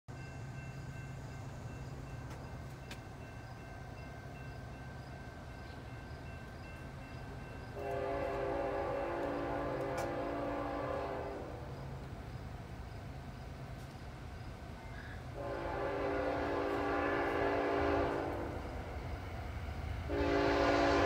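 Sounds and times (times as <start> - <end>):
locomotive horn chord: 7.7 - 11.8, 15.3 - 18.9, 20.0 - 21.0.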